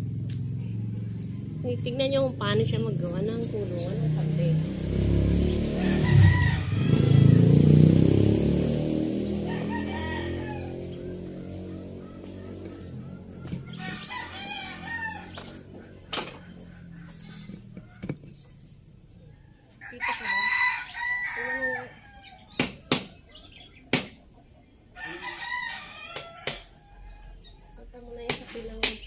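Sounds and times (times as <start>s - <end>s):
roosters crowing: 4.4s - 28.6s.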